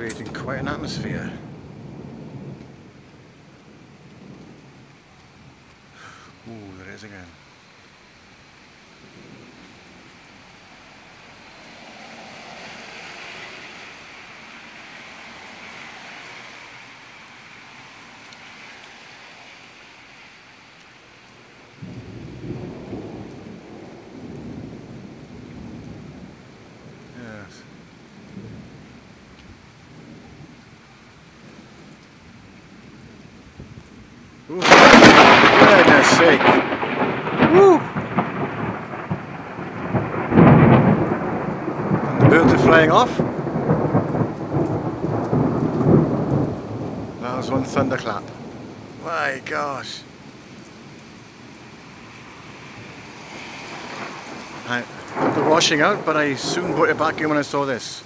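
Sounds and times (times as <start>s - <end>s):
deep thunder rumble: 0.0s - 5.0s, 21.8s - 29.0s, 32.9s - 50.0s, 53.9s - 57.6s
heavy rain hissing: 0.0s - 58.0s.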